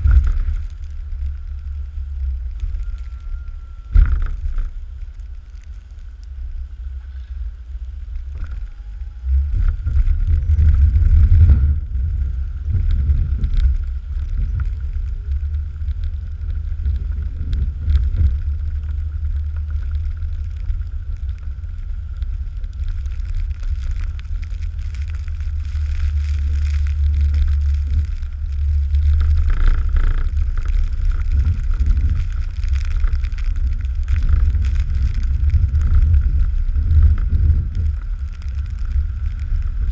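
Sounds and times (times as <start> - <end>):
truck engine rumble: 0.0 - 39.9
wind buffeting microphone: 0.0 - 39.9
faint high tone: 2.8 - 4.0.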